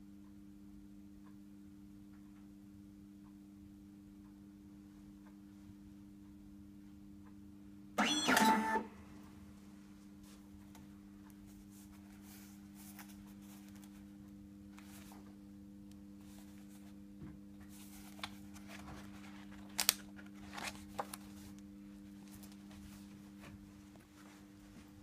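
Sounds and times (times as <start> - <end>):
steady low hum: 0.0 - 25.0
paper document clicks: 8.0 - 8.8, 19.4 - 21.2
paper rustling: 17.7 - 21.6.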